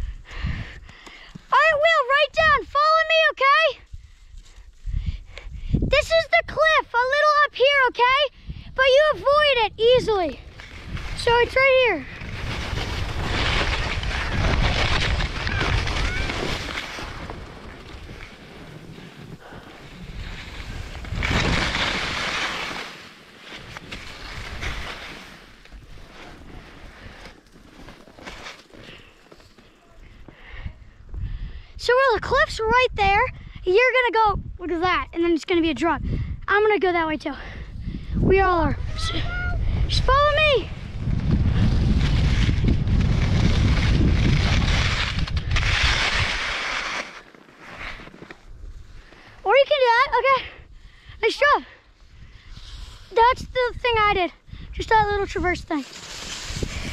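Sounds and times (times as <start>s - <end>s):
wind on microphone: 3.9s - 6.6s, 8.3s - 22.2s, 30.5s - 33.6s, 34.3s - 35.1s, 35.9s - 36.5s, 37.4s - 46.6s, 52.0s - 56.9s
skis scraping on snow: 9.0s - 30.5s, 40.1s - 49.8s, 52.5s - 54.0s, 54.8s - 56.9s.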